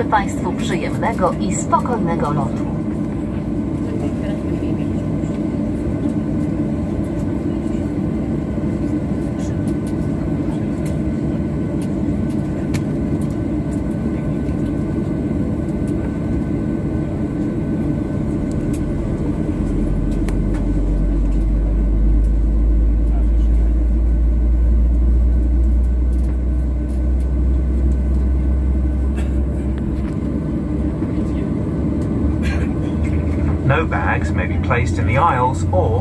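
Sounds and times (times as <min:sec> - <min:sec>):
airplane cabin noise: 0:00.0 - 0:36.0
deep low rumble: 0:00.0 - 0:36.0.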